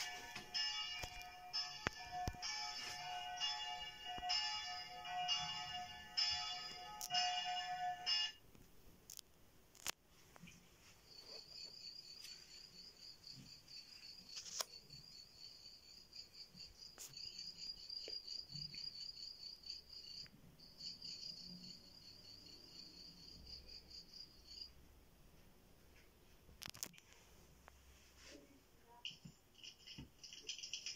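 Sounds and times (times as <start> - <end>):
cricket chirping: 10.8 - 24.9.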